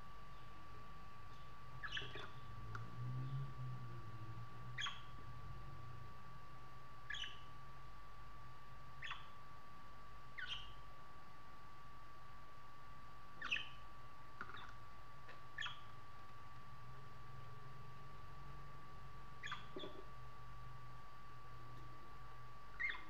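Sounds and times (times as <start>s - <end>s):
faint steady whine: 0.0s - 23.0s
budgerigar chirping: 1.8s - 2.4s, 4.8s - 5.1s, 7.1s - 7.5s, 9.0s - 9.4s, 10.4s - 10.8s, 13.4s - 13.8s, 15.6s - 15.9s, 19.4s - 20.0s, 22.7s - 23.0s.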